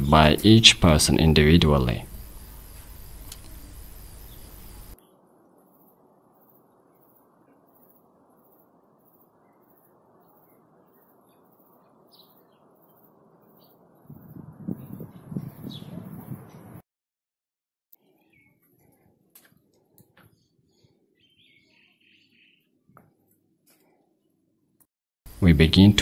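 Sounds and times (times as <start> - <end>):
steady hiss: 0.0 - 11.7, 25.3 - 26.0
faint bird chirps: 2.0 - 16.6, 18.0 - 19.1, 20.1 - 23.0.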